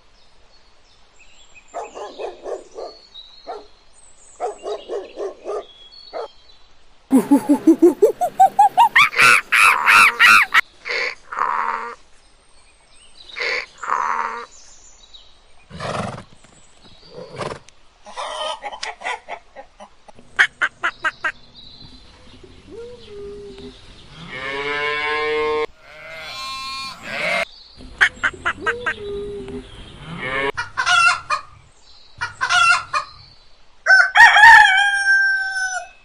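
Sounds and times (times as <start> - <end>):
animal cries: 7.1 - 10.6, 25.7 - 27.4
long pitched animal call: 24.2 - 27.4.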